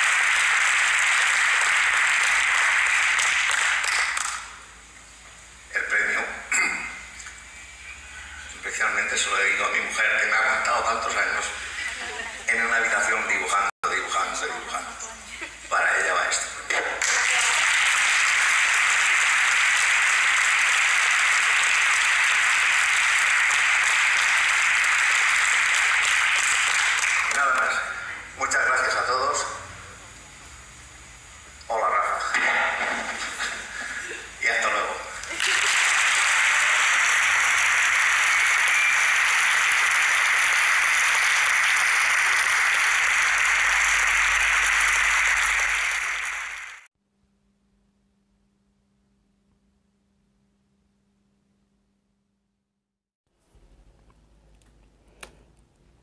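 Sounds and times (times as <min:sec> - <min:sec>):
audience applauding: 0:00.0 - 0:04.6, 0:16.7 - 0:28.0, 0:35.2 - 0:46.9.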